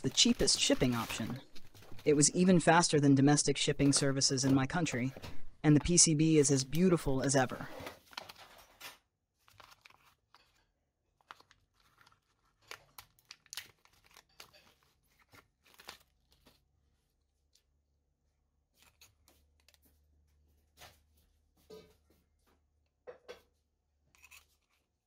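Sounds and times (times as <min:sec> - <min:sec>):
plastic bag crinkling and tearing: 0:00.0 - 0:02.1, 0:09.4 - 0:10.5, 0:11.2 - 0:16.6.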